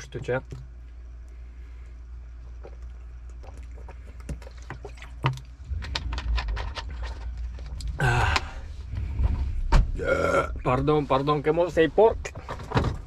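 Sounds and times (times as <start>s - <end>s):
person gulping drink: 2.4s - 5.8s
short burp: 10.0s - 10.6s.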